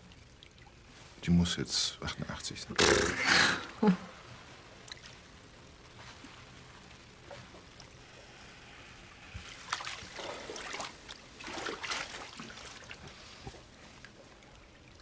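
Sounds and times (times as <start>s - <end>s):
bath water sloshing: 4.2s - 8.6s, 9.2s - 15.0s.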